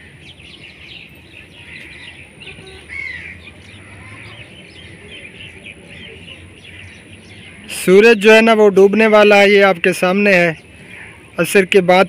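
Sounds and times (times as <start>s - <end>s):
loud arched bird call: 0.0s - 8.3s
birds chirping in chorus: 0.0s - 12.0s.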